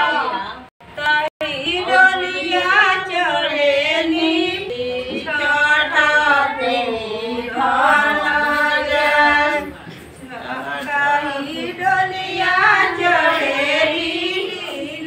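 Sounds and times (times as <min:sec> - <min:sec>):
women singing devotional song: 0:00.0 - 0:15.0.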